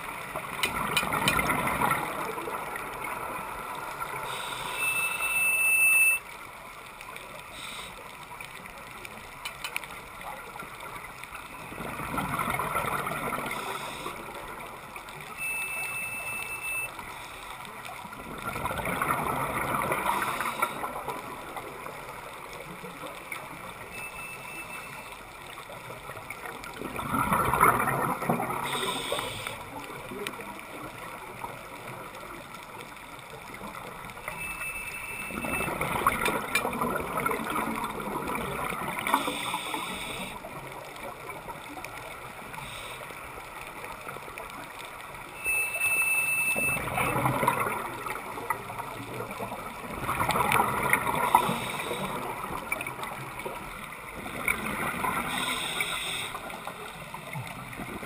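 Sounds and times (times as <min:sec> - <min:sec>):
water noise: 0:00.0 - 0:58.0
quiet breathing: 0:04.0 - 0:05.3, 0:07.3 - 0:08.4, 0:13.4 - 0:14.7, 0:16.3 - 0:18.0, 0:20.0 - 0:21.2, 0:28.6 - 0:30.0, 0:38.9 - 0:40.9, 0:42.3 - 0:43.8, 0:51.0 - 0:52.7, 0:55.1 - 0:57.6
diver's bubbles underwater: 0:11.6 - 0:14.6, 0:18.2 - 0:22.0, 0:26.4 - 0:29.2, 0:34.7 - 0:42.8, 0:46.4 - 0:58.0.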